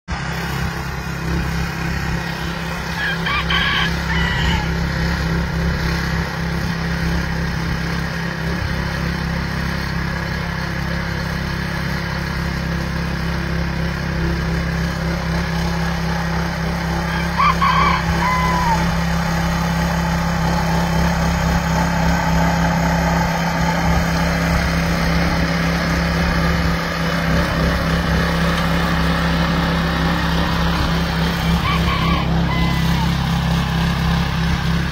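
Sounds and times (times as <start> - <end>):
garden tiller engine running: 0.1 - 34.9
chicken calling: 2.2 - 4.9, 15.3 - 19.8, 30.7 - 33.3.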